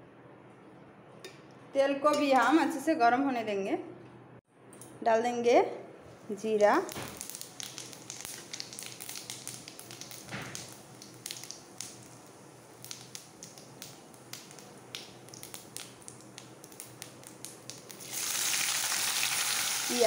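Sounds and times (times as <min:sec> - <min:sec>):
seeds crackling in hot oil: 0:06.5 - 0:20.0.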